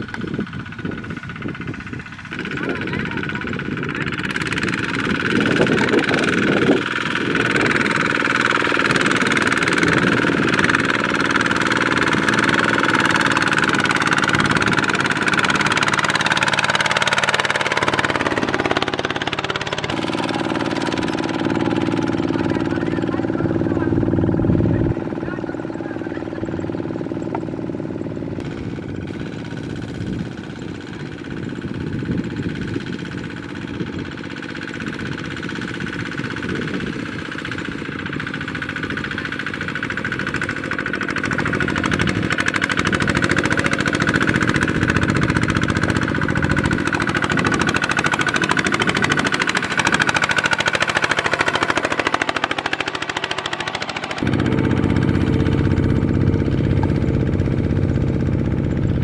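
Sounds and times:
diesel tractor engine running: 0.0 - 59.0
steady high whine: 38.6 - 59.0.

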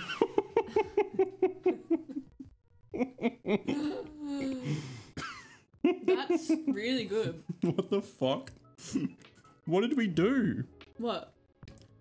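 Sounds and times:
people laughing: 0.0 - 2.4.

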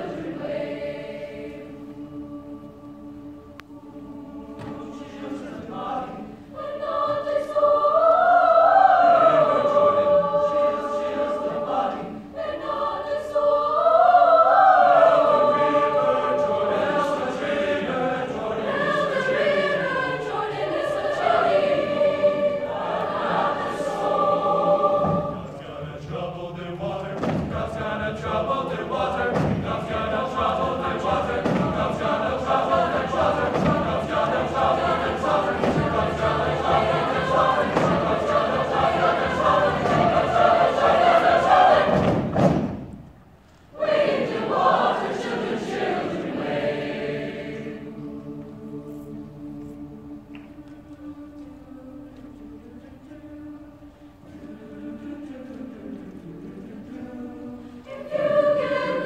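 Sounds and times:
choir singing in harmony: 0.0 - 59.0
conga drum strokes: 31.0 - 40.4.

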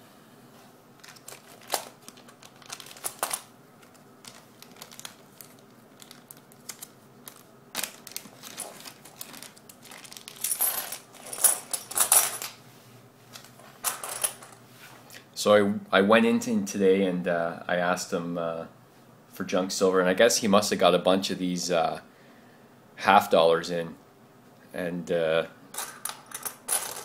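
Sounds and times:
plastic bag crinkling: 1.0 - 12.3
coins clinking onto wooden floor: 9.8 - 12.6, 13.8 - 14.6, 25.8 - 27.0.

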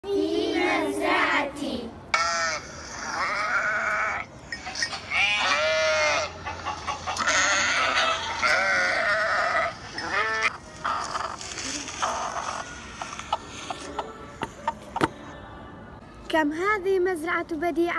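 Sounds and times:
sheep bleating: 5.1 - 6.3, 7.2 - 10.5.

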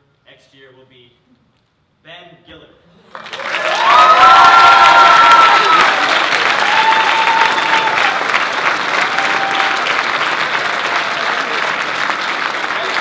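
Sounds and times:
audience applauding: 3.1 - 13.0.

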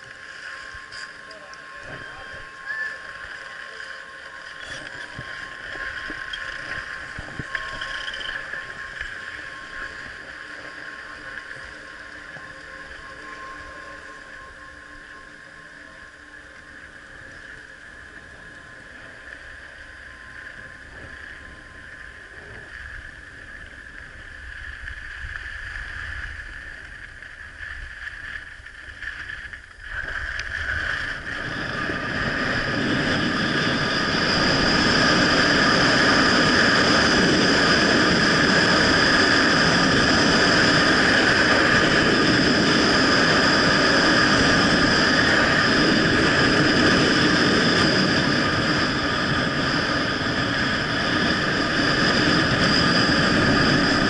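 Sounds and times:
wind rushing over microphone: 4.7 - 11.0, 19.6 - 54.0.

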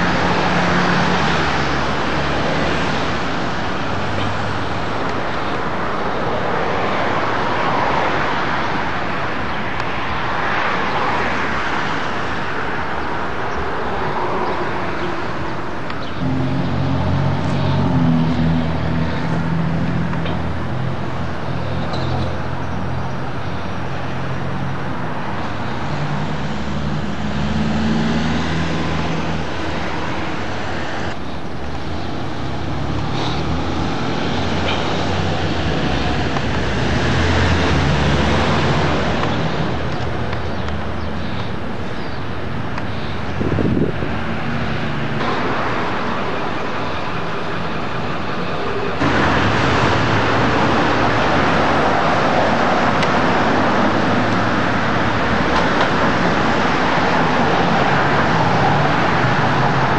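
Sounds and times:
vehicles passing: 0.0 - 59.9
low steady drone: 16.2 - 23.0.

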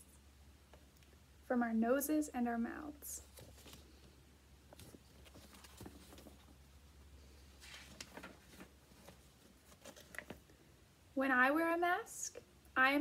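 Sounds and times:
paper pages rustling: 3.2 - 10.5.

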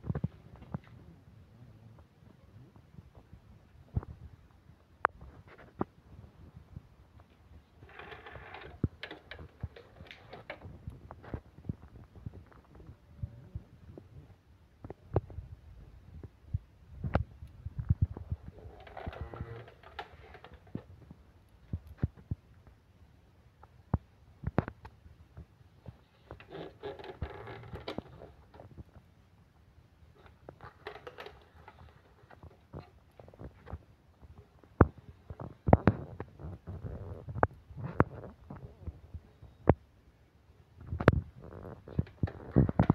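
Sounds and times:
soft rubbing and small clicks: 0.0 - 1.1, 1.9 - 13.0, 16.1 - 22.8, 23.6 - 29.1, 30.1 - 39.8, 40.8 - 42.9
microphone handling bumps: 8.6 - 19.8.

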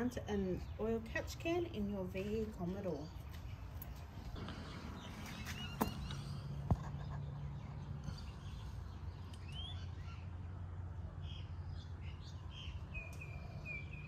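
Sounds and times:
bird chirps and calls: 4.4 - 10.6, 11.2 - 14.0.

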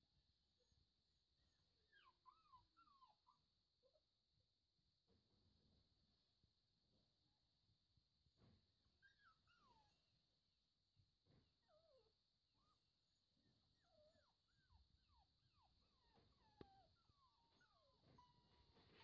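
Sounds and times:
puppies whimpering: 1.4 - 3.5, 8.9 - 10.1, 11.6 - 19.0.

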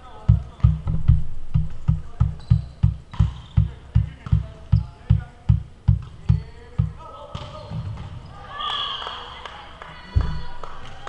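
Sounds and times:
bass drum beat music: 0.2 - 7.0.

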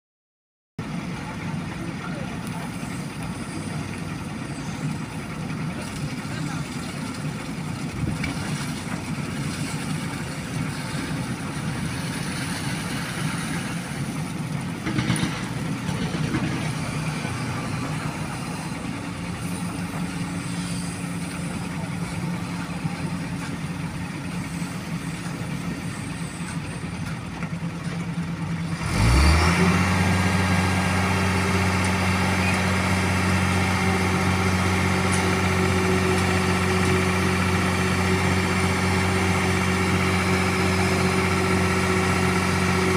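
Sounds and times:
diesel engines running: 0.8 - 42.9
engine revving high: 28.7 - 42.9.

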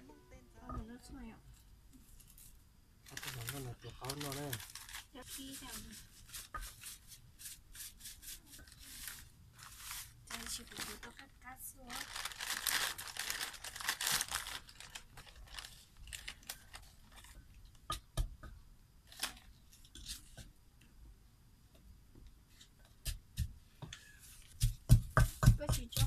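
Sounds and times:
plastic packet crinkling: 3.0 - 5.9, 8.6 - 17.4
pestle tapping in mortar: 17.9 - 18.6, 24.5 - 26.0.

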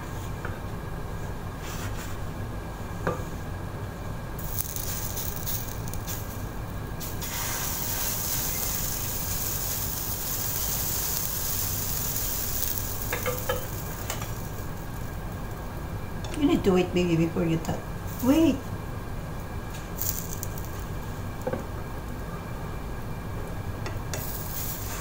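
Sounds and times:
batter sizzling in a pan: 4.4 - 16.0, 19.8 - 21.5, 24.0 - 25.0.

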